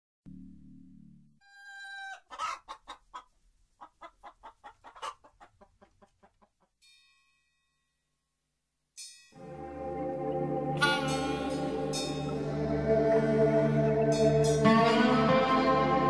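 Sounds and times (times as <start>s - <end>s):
rooster clucking: 1.5s - 6.6s.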